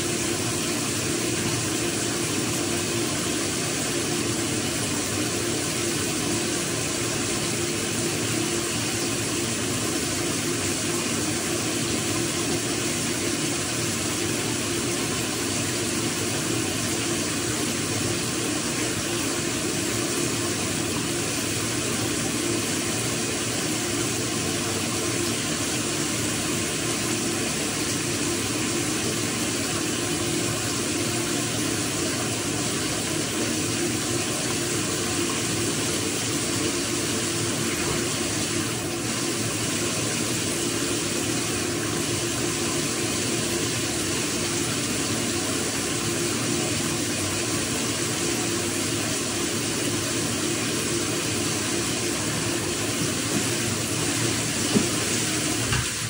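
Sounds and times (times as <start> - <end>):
shower running: 0.0 - 56.0.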